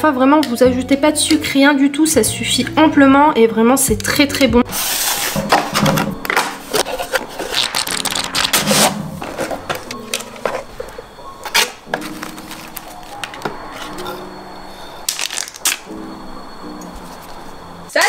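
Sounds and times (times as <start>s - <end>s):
cardboard box rustling and scraping: 4.7s - 14.2s.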